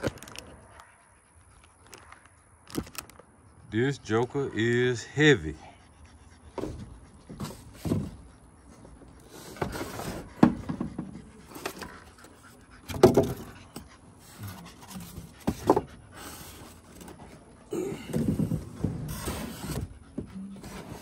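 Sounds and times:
foam and cardboard rubbing: 18.2s - 21.0s.

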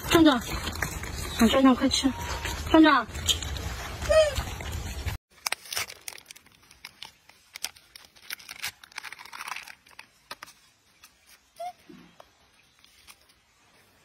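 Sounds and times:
plastic wrapper crinkling: 5.3s - 11.5s.

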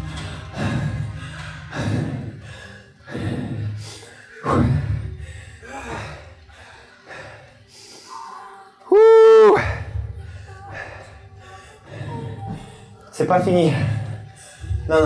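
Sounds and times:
man breathing hard: 0.0s - 8.6s.

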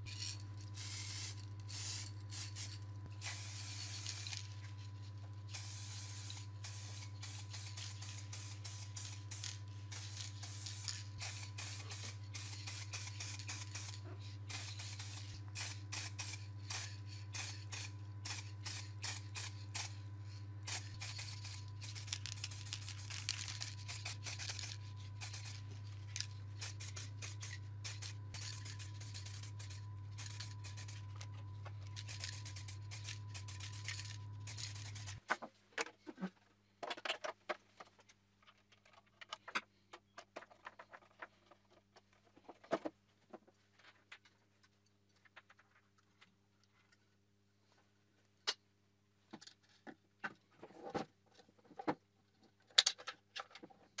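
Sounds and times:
steady low hum: 0.0s - 35.2s
spray can hissing in spurts: 0.8s - 4.5s, 5.5s - 20.0s, 20.6s - 25.6s, 26.2s - 31.1s, 32.0s - 35.2s.

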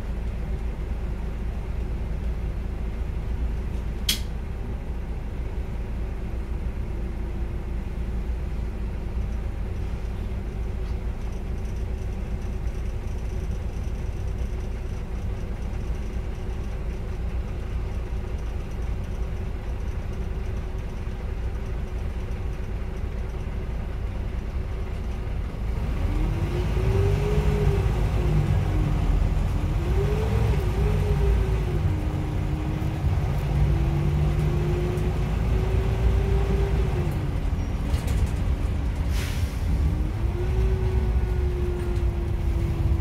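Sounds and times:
bus diesel engine running: 0.0s - 43.0s
sharp click: 3.8s - 4.4s.

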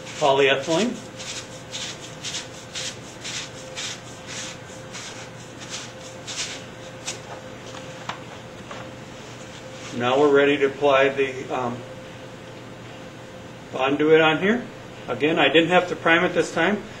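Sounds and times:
sandpaper rubbing on plastic pipe: 0.0s - 7.2s.

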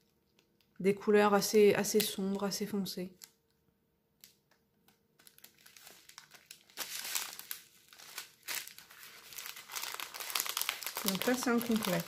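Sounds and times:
plastic packaging crinkling: 4.2s - 12.0s.

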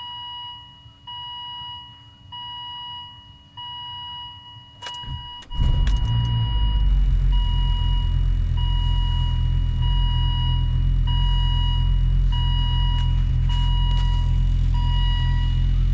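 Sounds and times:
diesel engine starting and idling: 4.8s - 15.9s.

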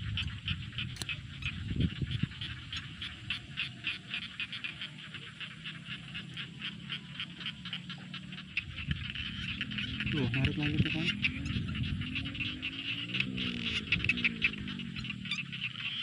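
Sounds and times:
small animal rasping calls: 0.0s - 16.0s.

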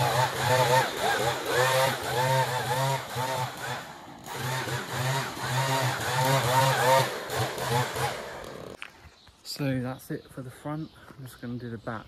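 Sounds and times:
leaf blower whine: 0.0s - 8.8s.

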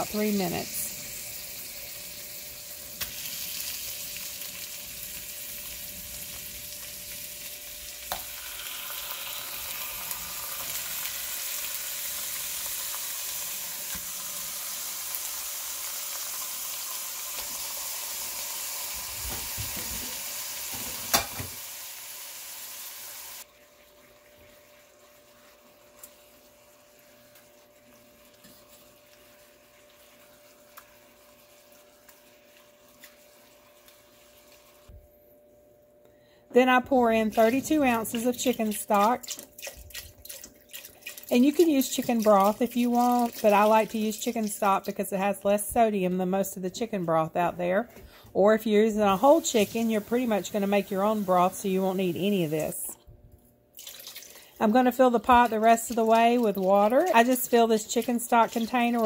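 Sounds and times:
meat sizzling in pot: 0.0s - 34.9s, 48.8s - 52.9s, 53.8s - 59.0s.

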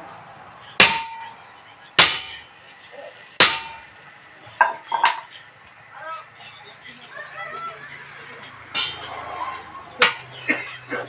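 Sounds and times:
hammer striking tyre rim: 0.8s - 1.4s, 2.0s - 2.5s, 3.4s - 4.0s, 8.7s - 10.4s.

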